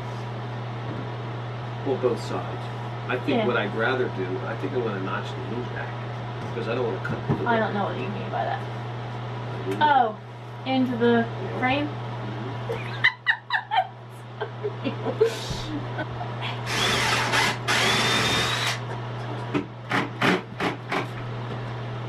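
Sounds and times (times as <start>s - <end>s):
power drill whining: 16.6s - 18.8s.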